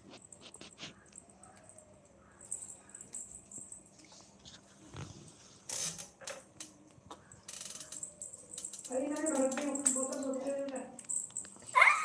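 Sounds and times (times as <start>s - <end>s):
kitten scuffling on tiled floor: 0.0s - 1.6s, 2.6s - 6.1s.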